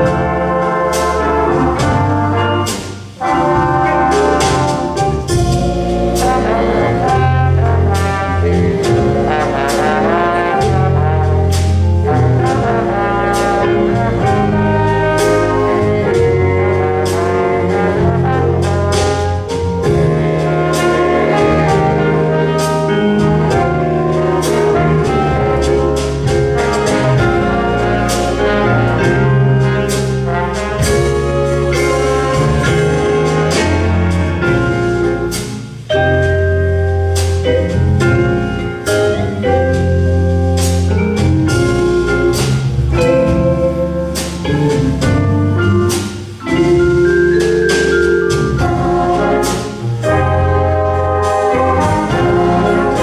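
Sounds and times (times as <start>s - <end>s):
trumpets: 0.0s - 36.4s, 47.7s - 53.0s
drum and cymbal hits: 0.0s - 53.0s
mallet percussion: 0.0s - 53.0s
piano: 0.0s - 53.0s
saxophones: 0.0s - 53.0s
trombones: 0.0s - 53.0s.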